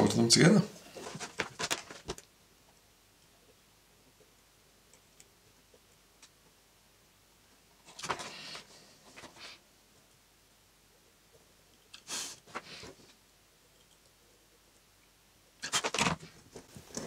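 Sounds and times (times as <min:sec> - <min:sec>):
wires rustling and clicking: 0:00.8 - 0:03.6, 0:15.6 - 0:17.0.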